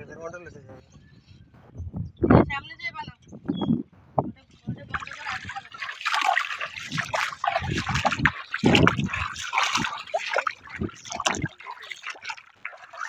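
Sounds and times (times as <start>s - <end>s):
shallow water splashing: 4.7s - 13.0s.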